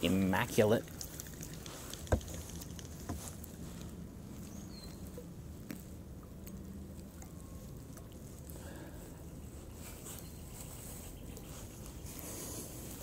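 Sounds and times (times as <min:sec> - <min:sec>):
water dripping off paddle: 0:00.5 - 0:03.2.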